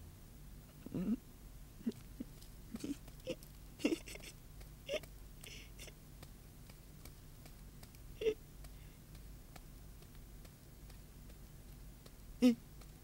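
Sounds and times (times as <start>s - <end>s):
steady low hum: 0.0s - 13.0s
faint person's voice: 12.4s - 12.7s.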